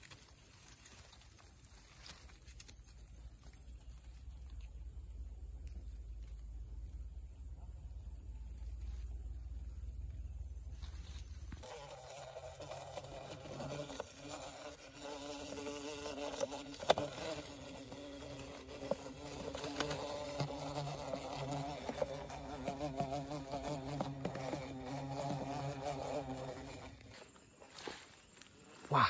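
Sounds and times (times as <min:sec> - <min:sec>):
bees buzzing in container: 0:10.4 - 0:27.3.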